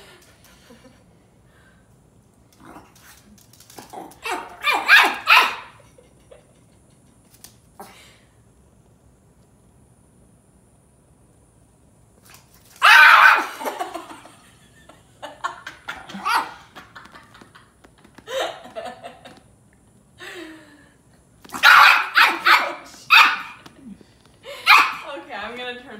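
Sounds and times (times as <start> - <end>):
small dog barking: 4.2 - 5.8, 12.8 - 13.6, 16.2 - 16.6, 21.5 - 23.6, 24.6 - 25.1.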